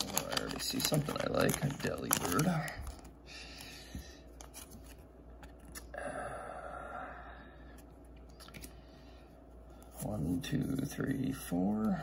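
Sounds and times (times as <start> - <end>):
cards rustling: 0.0 - 5.9.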